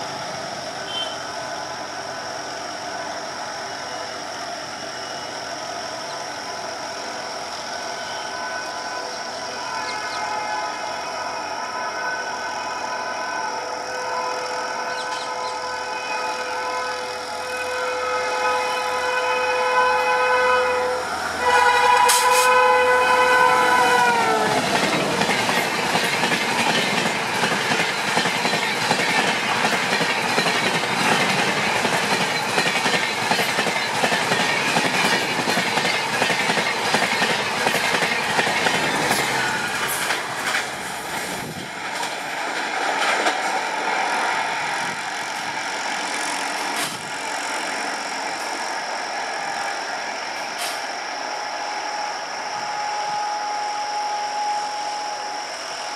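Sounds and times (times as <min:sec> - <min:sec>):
locomotive horn: 0:00.9 - 0:01.2, 0:13.5 - 0:24.9
train wheels clacking over rail joints: 0:23.9 - 0:43.9
faint steady tone: 0:51.2 - 0:55.9.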